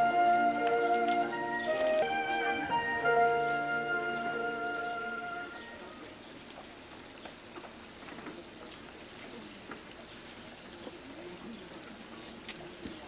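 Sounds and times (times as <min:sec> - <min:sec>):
sustained music: 0:00.0 - 0:06.0.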